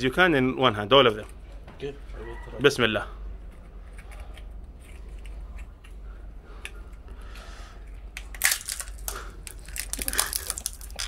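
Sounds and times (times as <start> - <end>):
low room hum: 0.0 - 11.0
walnut shells grinding: 7.8 - 11.0.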